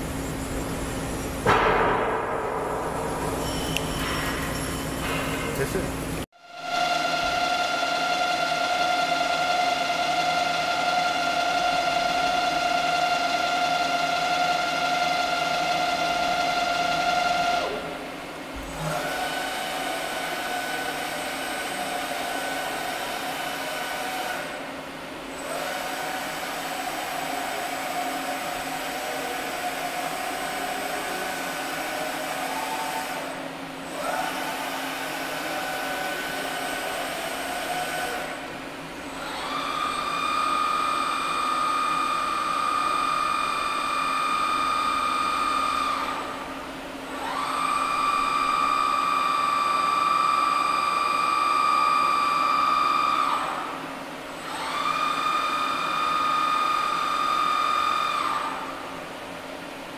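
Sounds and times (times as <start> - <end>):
machine drive whining: 0.0 - 9.5.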